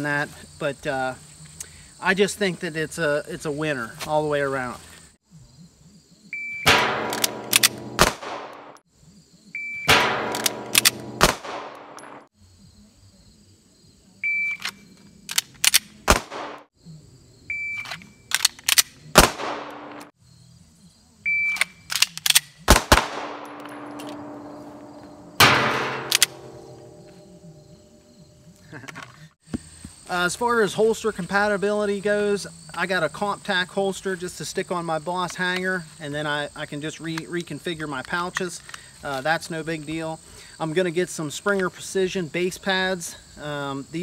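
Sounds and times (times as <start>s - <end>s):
pistol shots: 6.7s - 8.8s, 9.9s - 12.2s, 16.0s - 16.6s, 19.2s - 20.1s, 22.7s - 24.5s, 25.4s - 27.1s.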